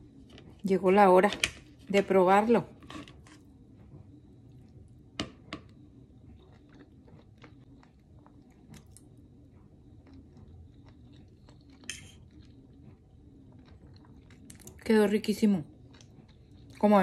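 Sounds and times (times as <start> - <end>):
person chewing food: 6.1 - 14.8, 15.7 - 16.8.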